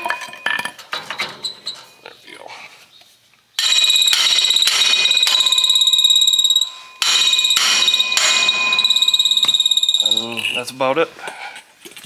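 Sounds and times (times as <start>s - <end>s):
hammer blows on ringing metal: 3.6s - 10.8s.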